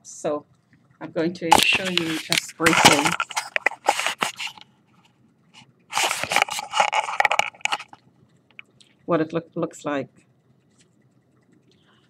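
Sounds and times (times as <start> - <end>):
handling noise rustling and scraping: 1.5 - 8.0.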